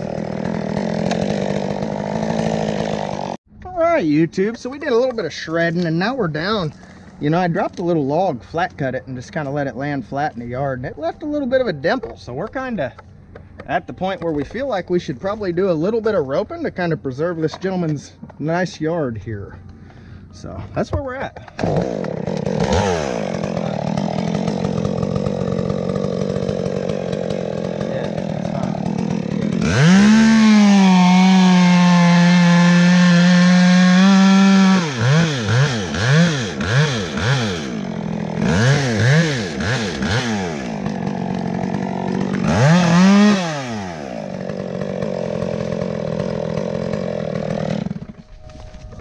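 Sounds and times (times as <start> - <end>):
chainsaw revving and idling: 0.0 - 3.4, 21.5 - 48.6.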